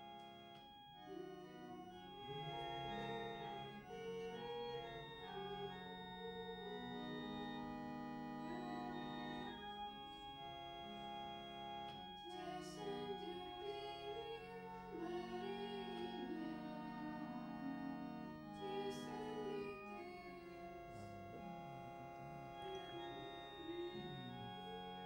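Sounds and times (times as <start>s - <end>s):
church organ playing chords: 0.0s - 25.0s.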